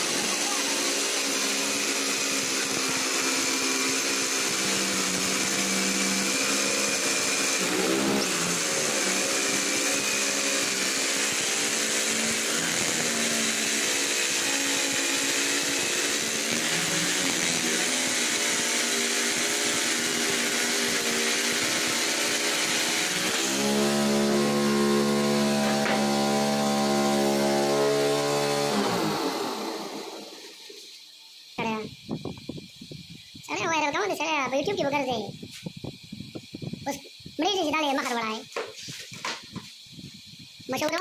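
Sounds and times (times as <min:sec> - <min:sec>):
electric jigsaw cutting: 0:00.0 - 0:30.7.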